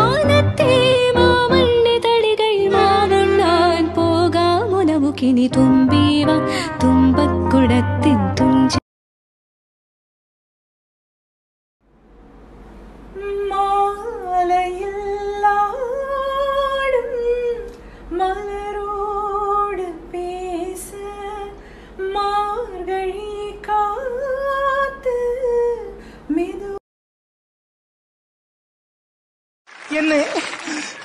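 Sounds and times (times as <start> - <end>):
woman singing: 0.0 - 8.8, 13.2 - 26.8.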